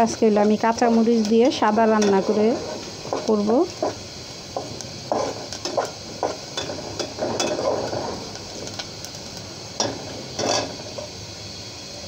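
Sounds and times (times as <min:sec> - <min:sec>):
onions sizzling in oil: 0:00.0 - 0:12.0
metal spatula scraping a pot: 0:01.2 - 0:04.1, 0:05.1 - 0:08.4, 0:09.8 - 0:10.8.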